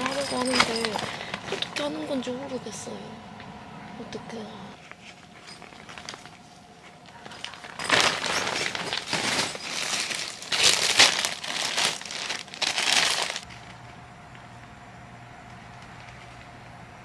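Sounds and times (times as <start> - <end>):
plastic sheet crinkling: 5.0 - 13.5.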